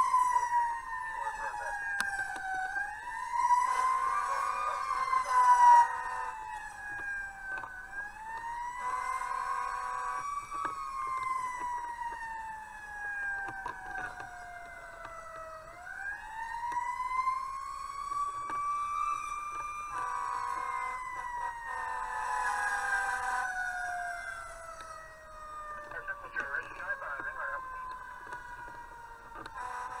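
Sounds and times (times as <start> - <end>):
fire engine siren wailing: 0.0 - 30.0
horn blasts: 19.9 - 20.9, 29.5 - 30.0.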